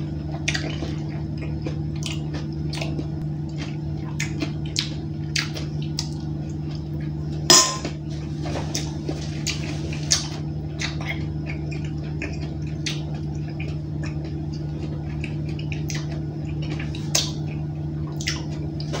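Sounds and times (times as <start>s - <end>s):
low machinery hum: 0.0s - 19.0s
chewing and mouth noises: 0.2s - 7.2s, 7.8s - 19.0s
metal spoon clinking on bowl: 7.5s - 7.9s.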